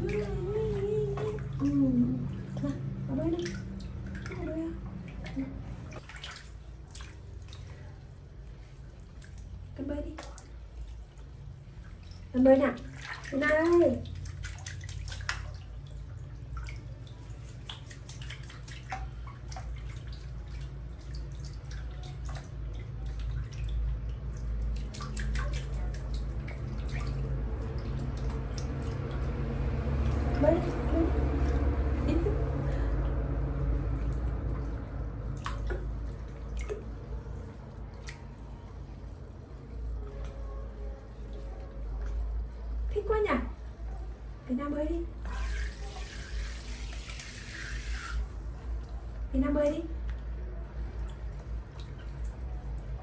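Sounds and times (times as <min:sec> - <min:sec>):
low steady rumble: 0:00.0 - 0:45.4, 0:48.2 - 0:53.0
low steady hum: 0:00.0 - 0:53.0
water dripping and splashing in basin: 0:00.0 - 0:53.0.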